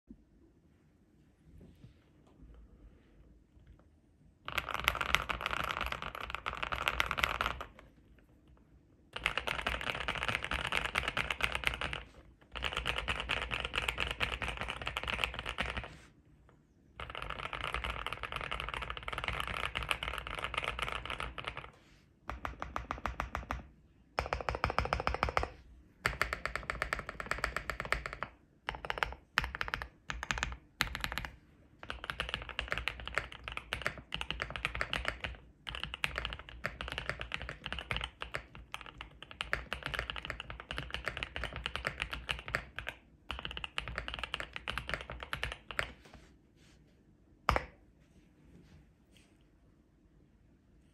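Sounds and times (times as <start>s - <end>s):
mechanical keyboard typing: 4.4s - 7.8s, 9.1s - 16.0s, 17.0s - 21.7s, 22.3s - 46.0s.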